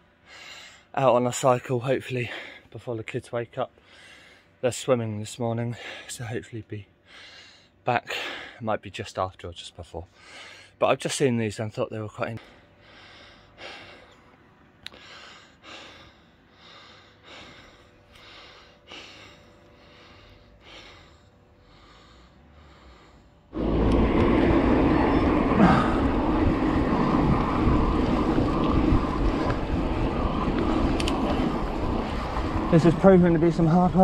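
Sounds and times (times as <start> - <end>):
wind rushing over microphone: 23.6 - 34.0.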